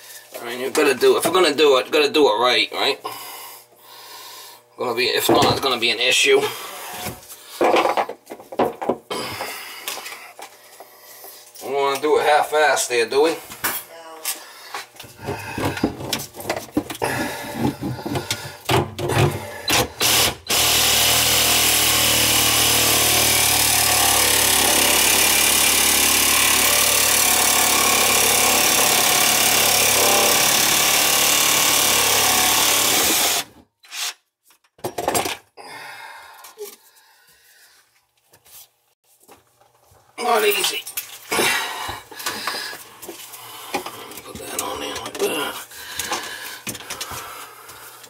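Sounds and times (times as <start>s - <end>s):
reciprocating saw cutting pipe: 20.0s - 33.6s.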